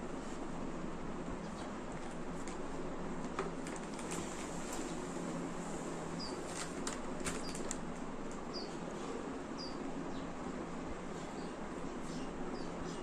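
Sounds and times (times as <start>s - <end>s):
steady background hiss: 0.0s - 13.0s
small bird chirping: 6.2s - 6.5s, 8.5s - 8.8s, 9.5s - 10.3s, 11.3s - 13.0s.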